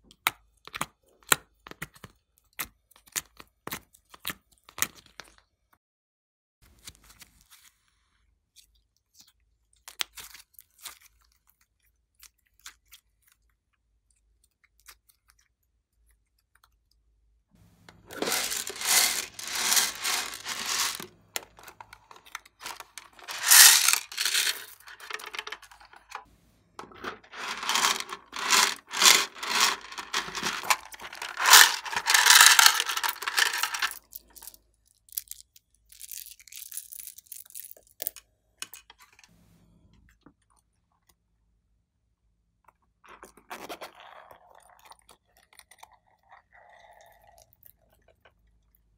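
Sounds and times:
plastic beads rattling: 18.0s - 26.2s, 26.8s - 37.8s.

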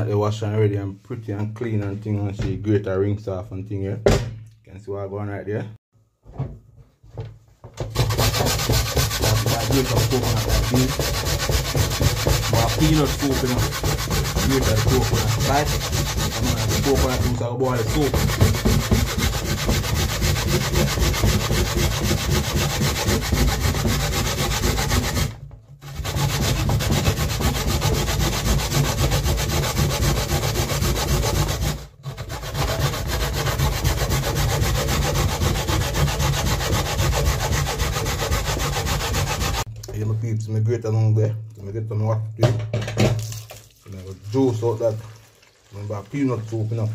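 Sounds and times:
coconut scraping on metal grater: 7.9s - 39.7s.

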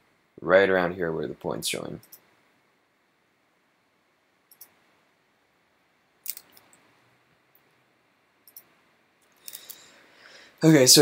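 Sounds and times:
computer mouse clicks: 2.0s - 2.3s, 4.5s - 4.8s, 6.2s - 6.8s, 8.4s - 9.8s.

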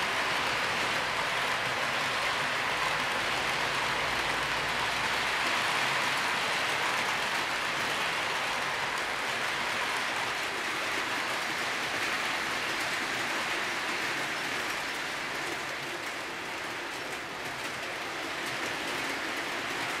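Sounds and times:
model train wheels on rails: 0.0s - 20.0s.

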